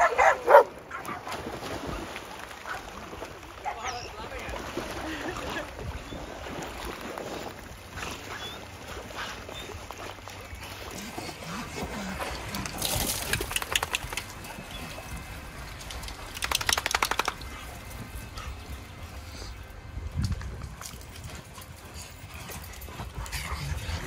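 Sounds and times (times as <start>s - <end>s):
dogs shaking off water: 1.0s - 18.8s.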